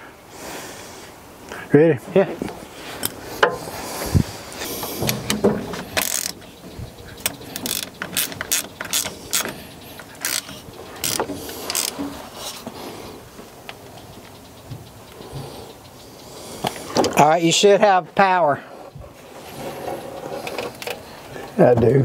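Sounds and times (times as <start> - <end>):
ratchet wrench clicking: 5.1 - 12.6.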